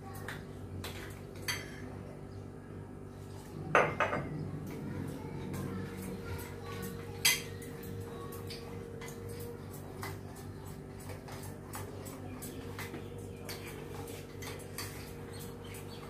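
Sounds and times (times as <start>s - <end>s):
steady low hum: 0.0s - 16.0s
batter mixing clicks and taps: 3.7s - 16.0s.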